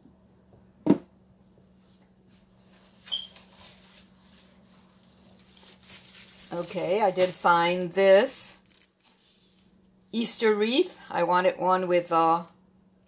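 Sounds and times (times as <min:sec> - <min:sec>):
faint hum: 0:00.0 - 0:13.0
box knocking on hard surface: 0:00.8 - 0:01.1.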